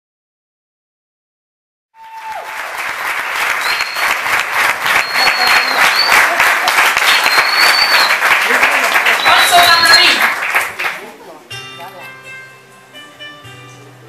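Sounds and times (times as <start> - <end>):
audience clapping: 2.0 - 11.2.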